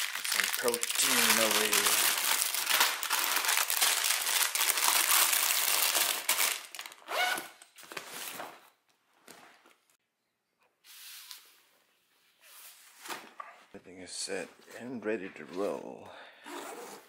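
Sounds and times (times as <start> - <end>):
plastic wrappers crinkling: 0.0 - 8.4.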